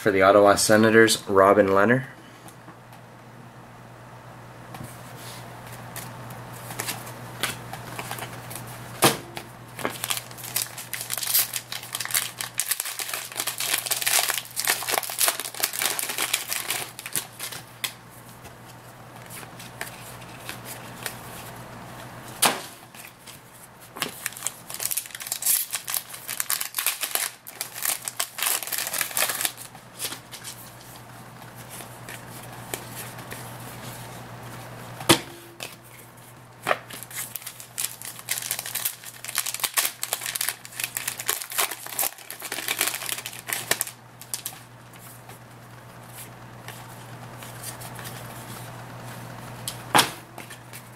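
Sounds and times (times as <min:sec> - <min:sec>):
wrappers crinkling: 0:09.7 - 0:18.0, 0:22.9 - 0:33.8, 0:37.0 - 0:45.1.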